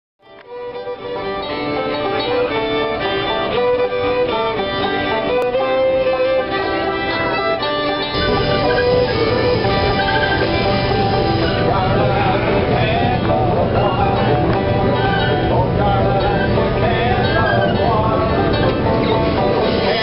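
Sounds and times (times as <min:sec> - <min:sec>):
fiddle string-band tune: 0:00.2 - 0:20.0
guitar accompaniment: 0:00.2 - 0:20.0
train rumbling: 0:08.1 - 0:20.0.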